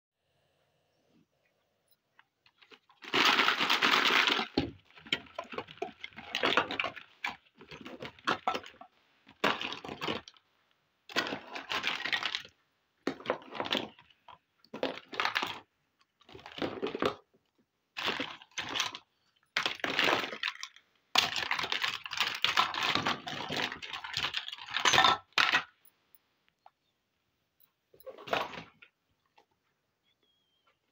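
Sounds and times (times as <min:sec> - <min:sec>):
plastic toys clattering in basket: 0:02.5 - 0:10.4, 0:11.1 - 0:12.5, 0:13.1 - 0:17.2, 0:18.0 - 0:25.8, 0:28.0 - 0:28.9.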